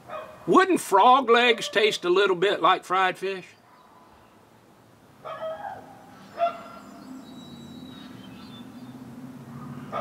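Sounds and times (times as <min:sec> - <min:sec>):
animal yelps: 0:05.3 - 0:06.8, 0:09.6 - 0:10.0.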